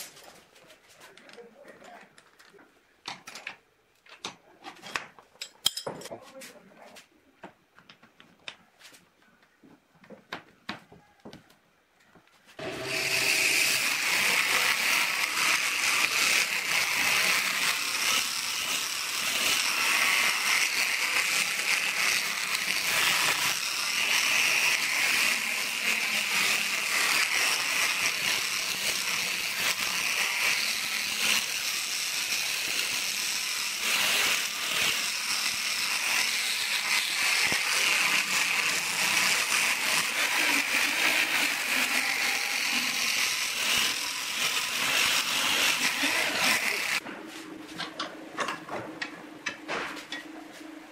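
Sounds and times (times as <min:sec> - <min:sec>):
electric drill running: 0:12.6 - 0:47.0
sandpaper flaps scouring steel: 0:13.1 - 0:47.0.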